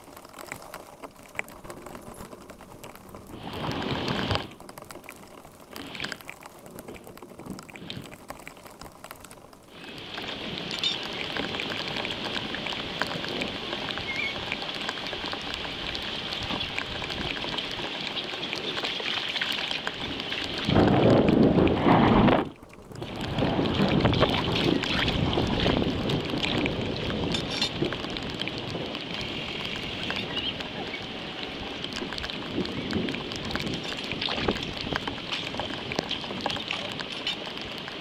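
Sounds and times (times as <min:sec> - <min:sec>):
heavy rain falling: 0:00.0 - 0:38.0.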